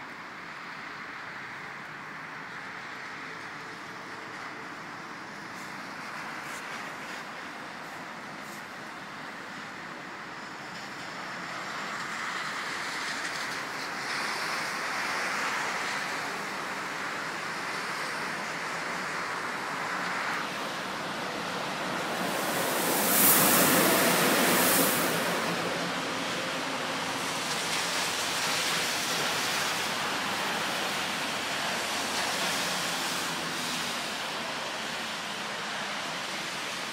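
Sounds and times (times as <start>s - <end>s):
electric locomotive passing: 9.8s - 35.9s
steady hiss: 14.7s - 36.9s.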